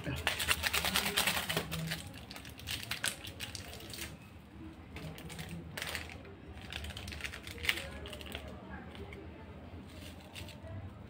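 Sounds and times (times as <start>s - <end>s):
sachet crinkling and rustling: 0.0s - 4.2s, 5.0s - 9.2s.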